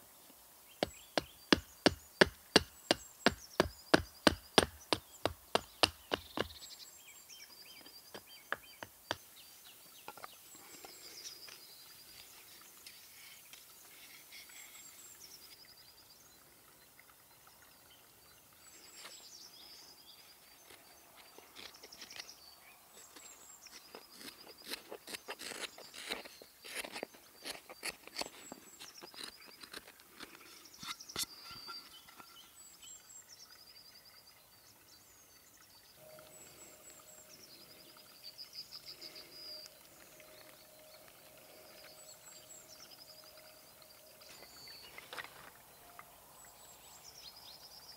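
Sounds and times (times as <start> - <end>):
songbird singing: 0.0 - 47.9
knife carving wood: 20.7 - 22.4, 23.0 - 31.8.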